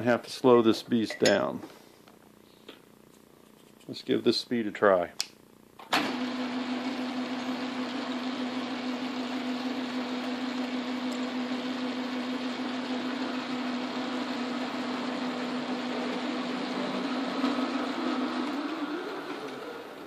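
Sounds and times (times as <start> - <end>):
metal lathe humming: 6.1 - 20.0.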